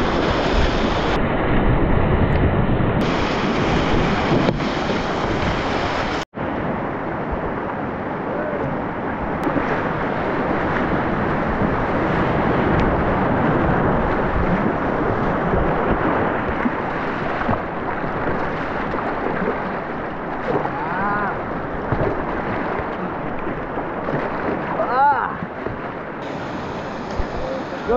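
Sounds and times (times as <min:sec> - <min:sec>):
whitewater rapids rushing: 0:03.0 - 0:06.2, 0:26.2 - 0:27.9.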